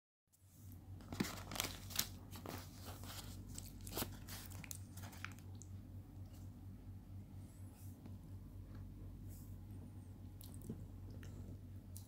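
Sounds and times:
steady low hum: 0:00.3 - 0:12.0
paper wrapping crinkling: 0:01.0 - 0:05.5.

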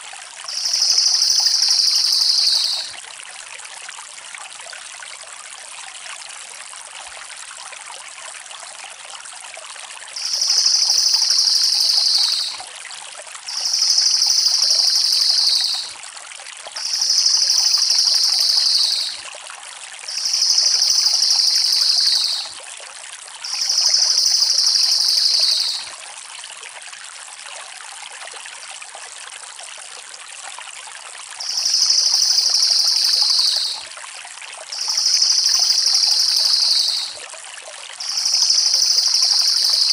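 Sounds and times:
running water: 0:00.0 - 0:08.8, 0:09.6 - 0:39.9
jay rattle calls: 0:10.2 - 0:12.6, 0:13.5 - 0:15.8, 0:16.8 - 0:19.2, 0:20.1 - 0:22.4, 0:23.5 - 0:25.8, 0:31.4 - 0:33.8, 0:34.8 - 0:37.1, 0:38.0 - 0:39.9.

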